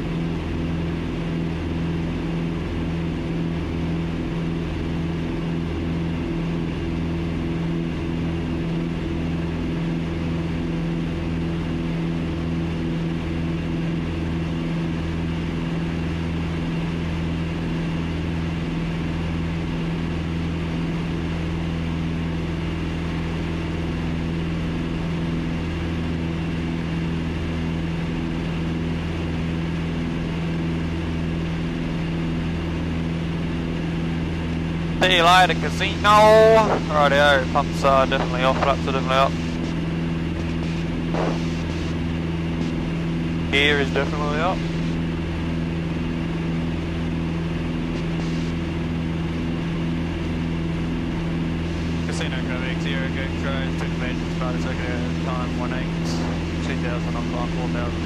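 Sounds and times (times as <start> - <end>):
propeller aircraft engines droning: 0.0 - 58.0.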